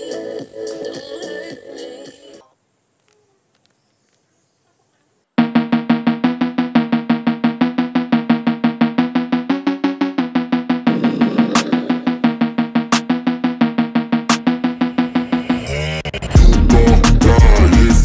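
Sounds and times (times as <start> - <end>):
background music pulsing notes: 5.4 - 17.6.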